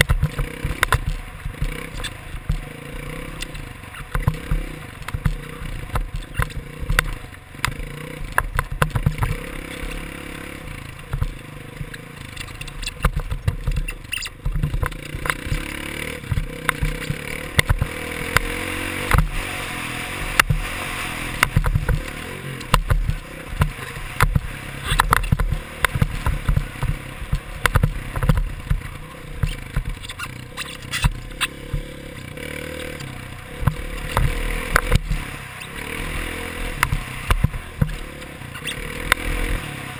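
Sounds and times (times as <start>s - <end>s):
dirt bike engine revving: 0.0s - 39.9s
knocks and rattles: 3.4s - 10.1s, 10.9s - 19.4s, 21.4s - 35.3s.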